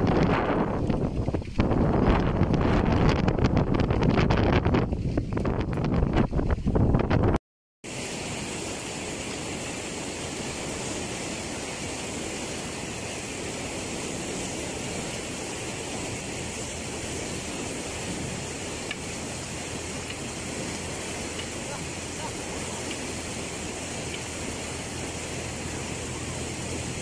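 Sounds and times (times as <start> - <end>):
wind noise on microphone: 0.0 - 7.4, 8.0 - 27.0
water rushing: 7.8 - 27.0.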